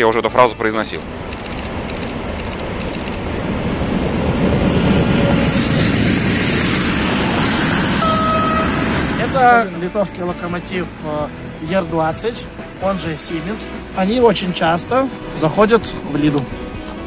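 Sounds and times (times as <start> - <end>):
diesel locomotive engine: 0.0 - 17.0
freight wagons rumbling past: 1.0 - 16.8.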